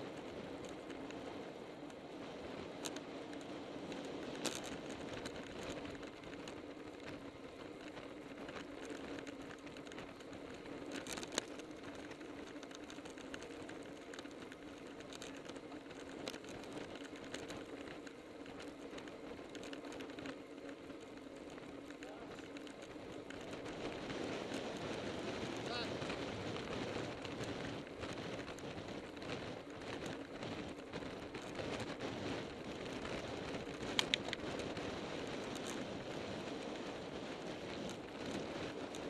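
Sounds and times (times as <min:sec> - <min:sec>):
bicycle clicks and ticks: 0:00.0 - 0:39.0
bicycle tyre hum on asphalt: 0:00.0 - 0:39.0.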